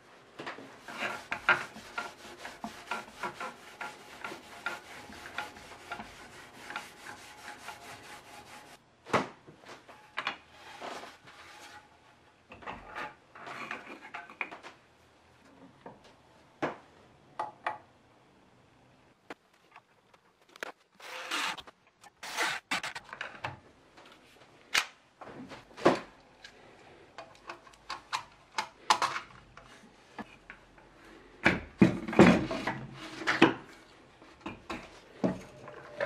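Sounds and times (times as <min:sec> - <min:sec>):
cloth rubbing on wooden board: 0:00.8 - 0:08.8.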